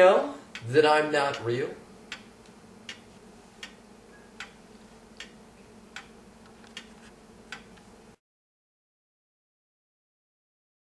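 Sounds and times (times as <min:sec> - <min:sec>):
low steady hum: 0:00.0 - 0:08.2
faint regular ticking: 0:00.4 - 0:08.0.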